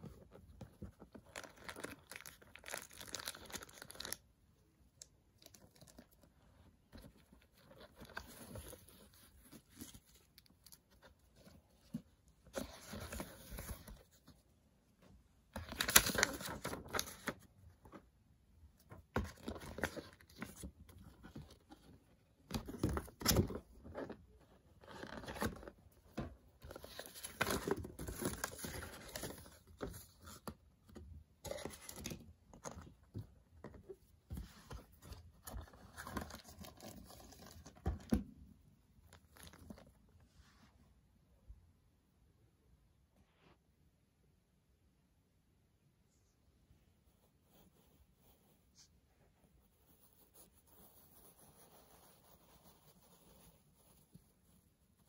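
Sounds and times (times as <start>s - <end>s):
paper and cardboard rustling: 6.8s - 14.5s, 15.5s - 18.1s, 18.8s - 38.2s.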